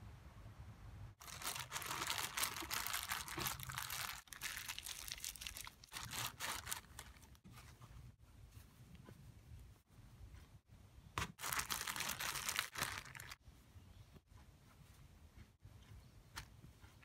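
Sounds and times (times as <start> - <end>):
plastic bag crinkling: 1.2 - 7.4, 11.4 - 13.4.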